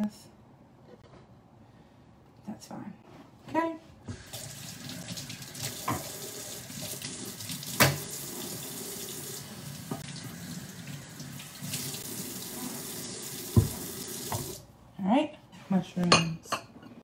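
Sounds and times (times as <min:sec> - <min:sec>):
faucet running into a sink: 0:04.1 - 0:14.6
cutting board knocking against sink: 0:13.5 - 0:14.6.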